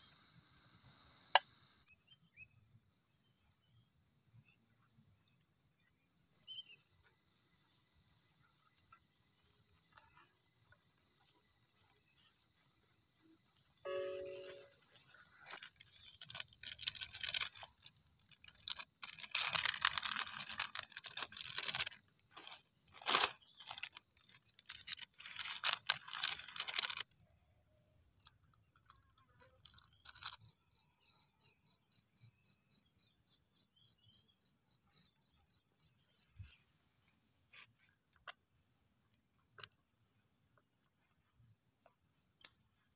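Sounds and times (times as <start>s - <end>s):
insects chirping: 0.0s - 42.9s
plastic sachets crinkling and tearing: 14.3s - 27.1s, 28.8s - 30.4s.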